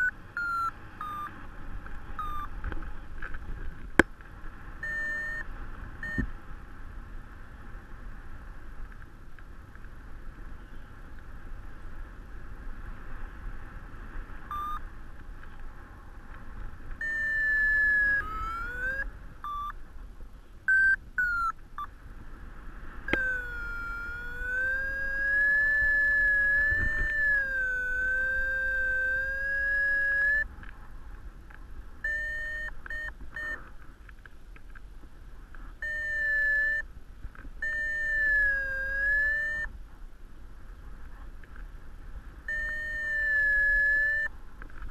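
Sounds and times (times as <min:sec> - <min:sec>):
variometer beeps and tones: 0:00.0 - 0:01.4, 0:02.2 - 0:02.6, 0:04.8 - 0:06.3, 0:14.5 - 0:14.8, 0:17.0 - 0:19.8, 0:20.7 - 0:21.9, 0:23.1 - 0:30.5, 0:32.0 - 0:33.7, 0:35.8 - 0:36.9, 0:37.6 - 0:39.7, 0:42.4 - 0:44.3
wind rushing over microphone: 0:00.0 - 0:44.9.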